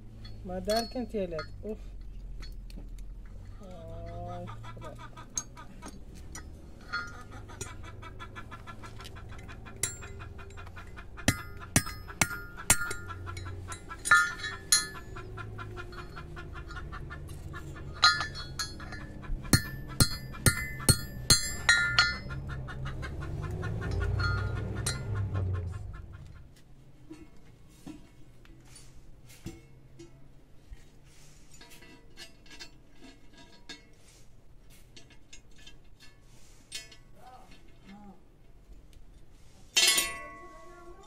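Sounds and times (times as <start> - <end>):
hammer striking metal: 11.2 - 15.2, 18.0 - 22.4.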